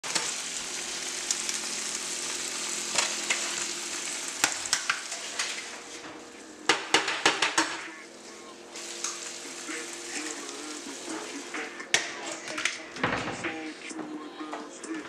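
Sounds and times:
butter sizzling in frying pan: 0.0s - 11.8s.

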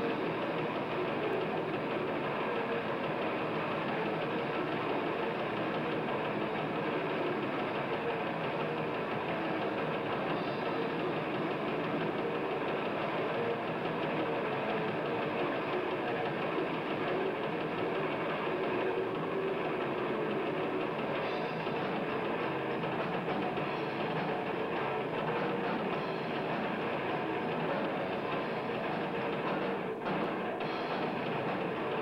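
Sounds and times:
death metal band playing live: 0.0s - 32.0s.

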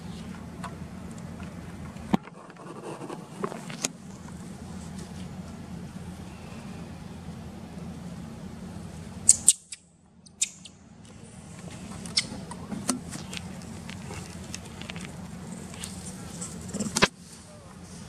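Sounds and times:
steady low background hum: 0.0s - 18.0s
monkeys squeaking: 9.3s - 9.8s, 10.4s - 10.7s, 12.0s - 12.5s.

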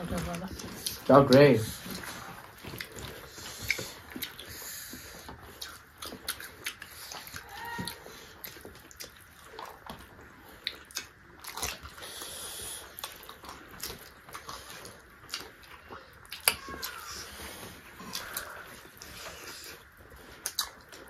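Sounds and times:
wet chewing and lip smacking: 0.0s - 21.0s
sticky clicks of squished food: 13.0s - 17.3s.

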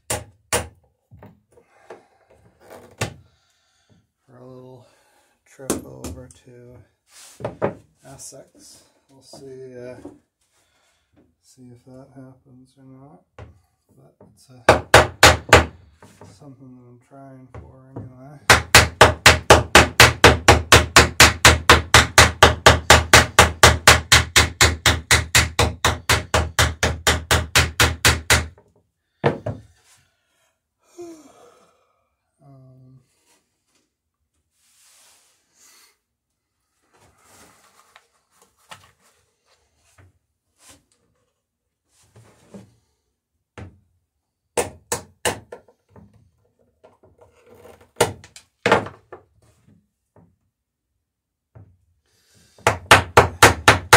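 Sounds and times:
tool handling knocks on wood: 29.2s - 29.7s.

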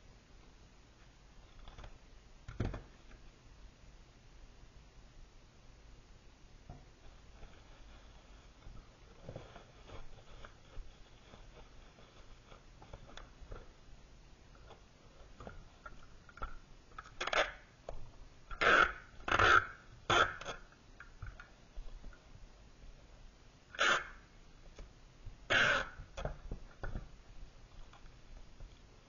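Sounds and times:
packing tape pulling off roll: 17.0s - 17.7s, 18.5s - 20.7s, 23.7s - 24.2s, 25.5s - 26.2s.

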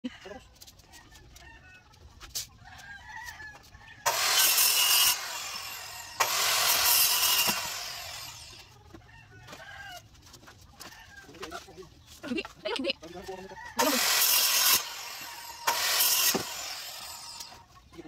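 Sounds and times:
circular saw cutting bamboo: 4.0s - 8.7s, 13.7s - 17.7s.

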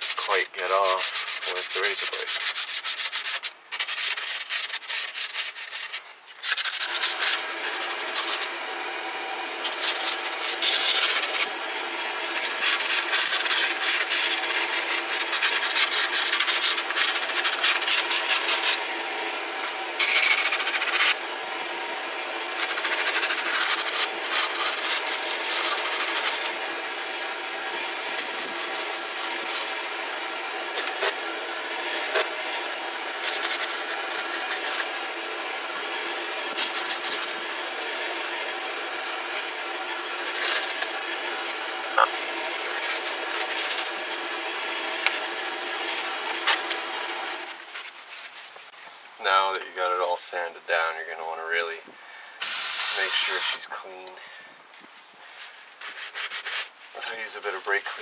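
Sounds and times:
emery cloth rubbing on metal: 0.0s - 8.5s, 52.8s - 54.0s, 55.3s - 58.0s.

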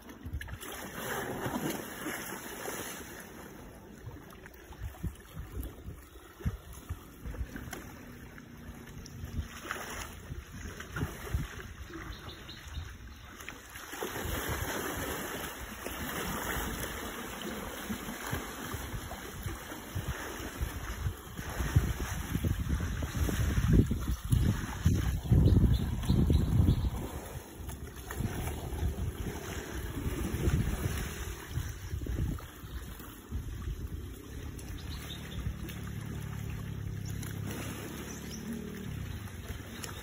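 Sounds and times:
muddy water sloshing and splashing: 0.0s - 40.0s
wind buffeting microphone: 4.6s - 13.2s, 18.0s - 40.0s.

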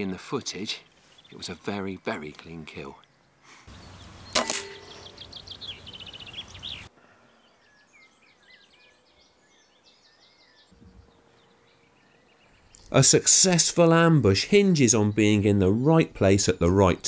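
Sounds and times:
songbirds singing: 0.0s - 17.0s
air rifle firing crack: 4.3s - 5.1s.

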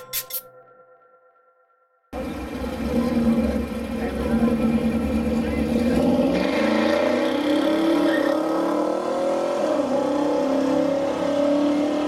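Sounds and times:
car engines idling: 2.2s - 8.3s.

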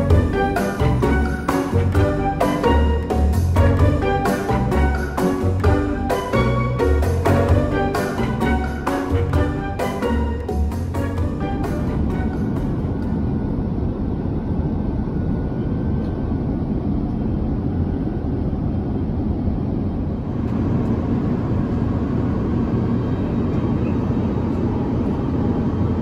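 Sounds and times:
airliner cabin rumble and air rush: 0.0s - 26.0s.

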